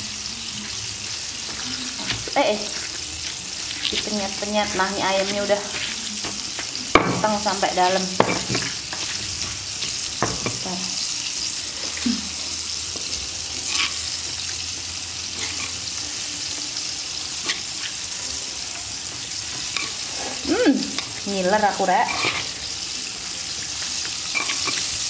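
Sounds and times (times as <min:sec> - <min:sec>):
oil sizzling in a pan: 0:00.0 - 0:25.0.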